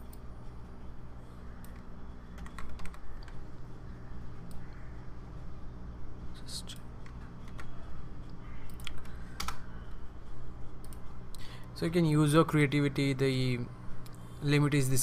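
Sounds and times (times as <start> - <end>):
steady low hum: 0.0 - 15.0
keyboard keys clicking: 2.4 - 3.4, 8.7 - 9.6.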